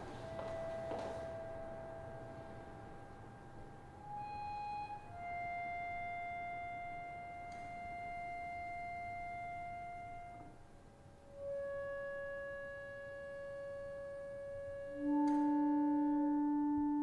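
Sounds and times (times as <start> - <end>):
slow solo instrumental music: 0.0 - 17.0.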